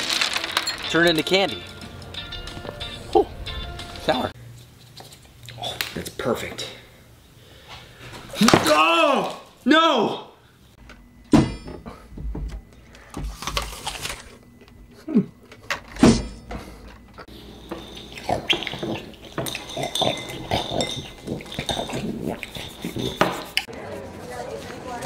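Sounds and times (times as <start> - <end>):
spoon clinking on ceramic bowls: 17.3 - 23.7.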